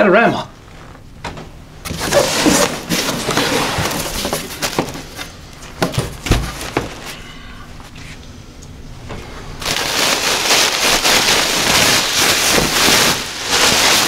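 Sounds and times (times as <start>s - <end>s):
cardboard box flaps scraping open: 1.9s - 4.6s
plastic packing crackling: 1.9s - 7.2s, 9.6s - 14.0s.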